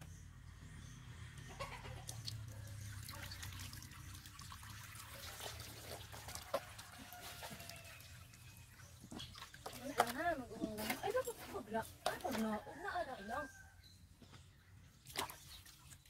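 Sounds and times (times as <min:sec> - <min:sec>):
water splashing and dripping: 0:01.9 - 0:12.7, 0:15.0 - 0:16.0
hands scrubbing wet fur: 0:04.8 - 0:12.6.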